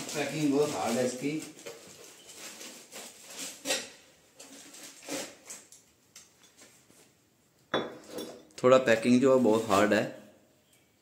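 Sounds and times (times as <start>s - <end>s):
packaging rustling and scraping: 0.0s - 5.8s, 9.0s - 10.1s.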